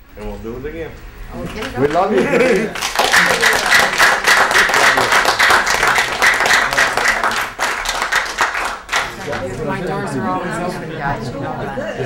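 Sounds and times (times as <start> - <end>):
people applauding: 1.4 - 9.8.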